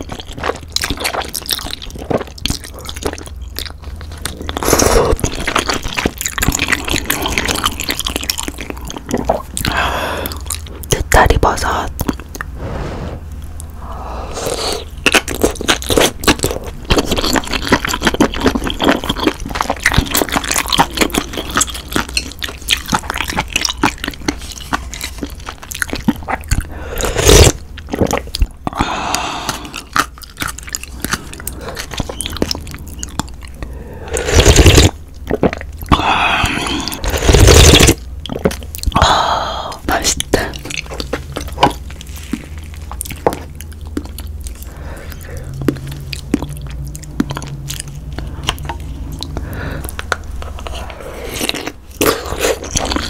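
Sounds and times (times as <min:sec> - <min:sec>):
wet crunchy chewing: 0:00.0 - 0:11.0, 0:14.4 - 0:53.0
slurping broth: 0:12.5 - 0:16.1, 0:26.2 - 0:30.2, 0:33.6 - 0:38.5
clicking mouth sounds: 0:43.8 - 0:51.0.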